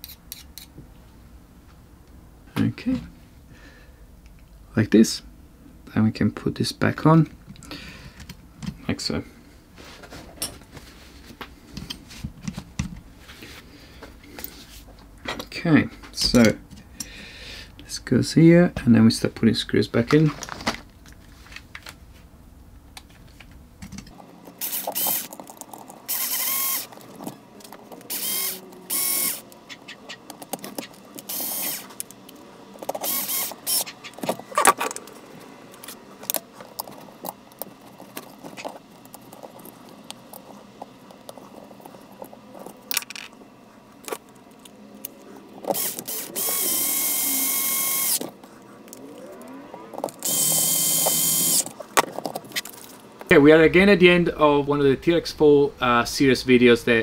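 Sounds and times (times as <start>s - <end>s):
tools and parts rattling: 23.8s - 28.4s, 32.8s - 43.4s, 51.0s - 53.3s
electric screwdriver whirring: 24.6s - 25.4s, 26.1s - 27.0s, 28.0s - 29.4s, 31.3s - 32.0s, 33.0s - 33.9s, 45.7s - 48.3s, 50.2s - 51.7s.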